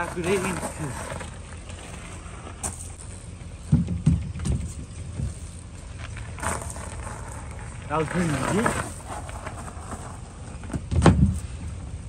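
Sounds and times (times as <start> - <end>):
bike landing thuds with clicks: 2.6 - 5.6, 10.7 - 11.4.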